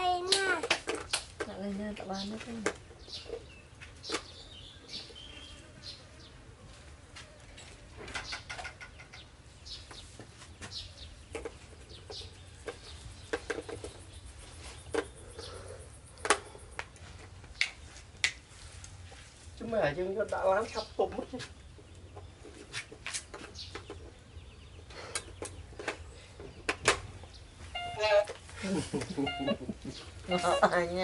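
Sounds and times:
faint bird chirps: 3.0 - 6.3.

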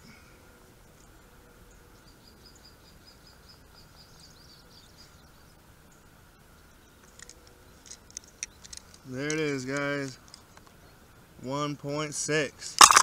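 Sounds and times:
bird chirping: 0.8 - 8.9.

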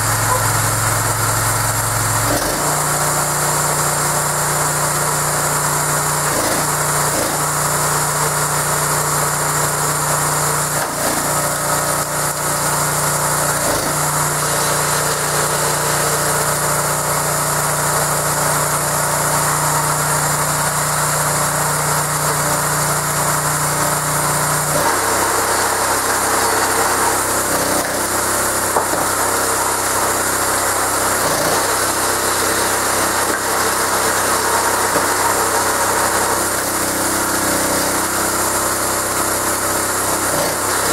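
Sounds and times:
petrol engine running: 0.0 - 40.9.

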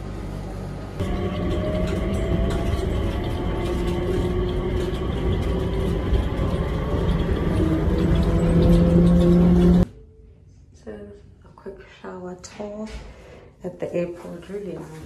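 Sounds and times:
train rumble: 0.0 - 10.0
whining motor tones: 0.8 - 9.9.

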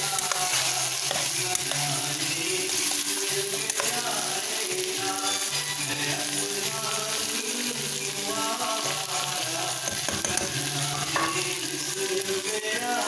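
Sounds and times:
spoon stirring: 0.0 - 4.4
food sizzling in a pan: 0.0 - 13.0
music playing: 0.0 - 13.0.

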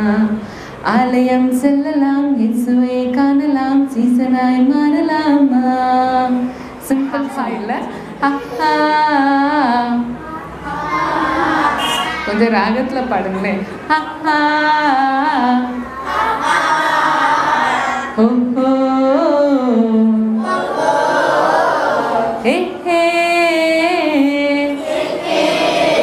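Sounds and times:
woman singing unaccompanied: 0.0 - 10.2, 12.3 - 15.9, 18.1 - 20.4, 22.4 - 24.9.

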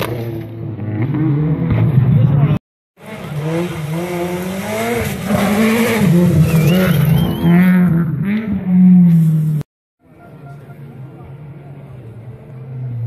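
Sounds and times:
rally car engine revving: 0.0 - 9.7.

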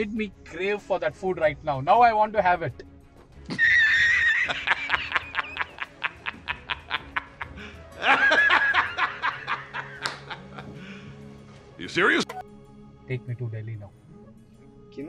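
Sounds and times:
man laughing hard: 3.5 - 10.8.

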